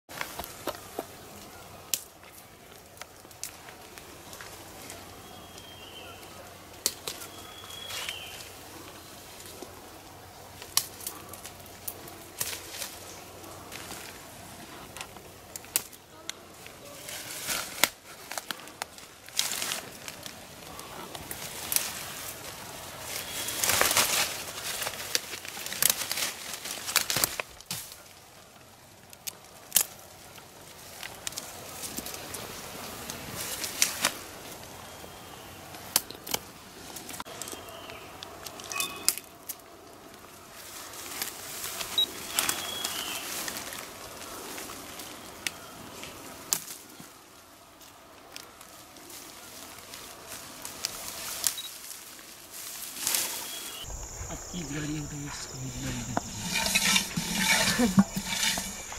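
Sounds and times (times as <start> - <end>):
bamboo leaves rustling: 0.1 - 58.9
bamboo shoots snapping: 6.8 - 7.2, 15.0 - 16.0, 23.6 - 28.0, 29.2 - 30.0.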